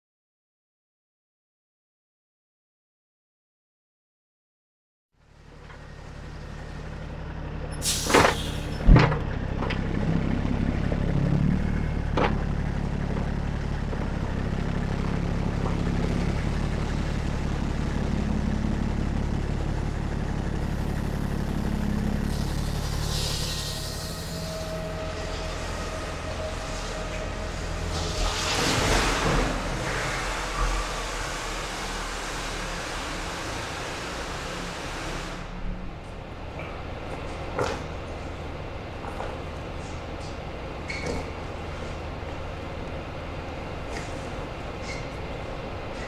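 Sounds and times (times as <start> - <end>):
truck diesel engine running: 5.2 - 46.0.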